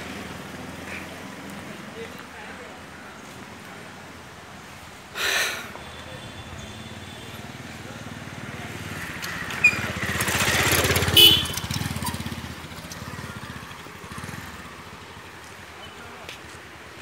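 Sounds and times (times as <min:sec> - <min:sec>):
motorcycle engine passing by: 0:07.4 - 0:15.5.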